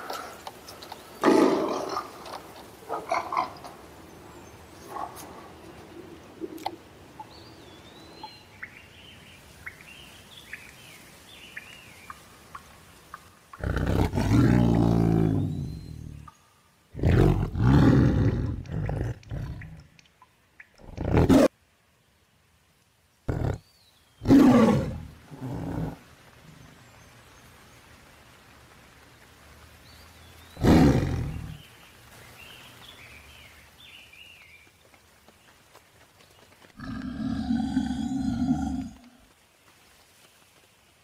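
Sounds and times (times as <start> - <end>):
tigers roaring and snarling: 13.6 - 16.2, 17.0 - 19.8, 20.8 - 21.5, 23.3 - 23.6, 24.2 - 26.0, 30.6 - 31.6, 36.8 - 39.2.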